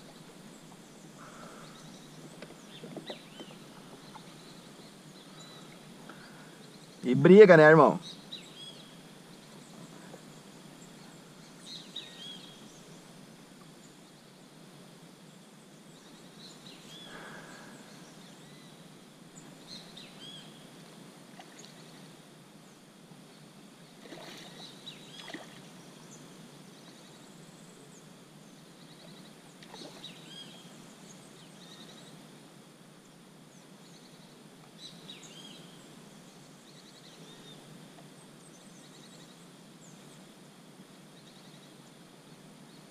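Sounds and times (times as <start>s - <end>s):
birds chirping: 0.0s - 13.0s, 15.8s - 20.6s
background hiss: 0.0s - 42.9s.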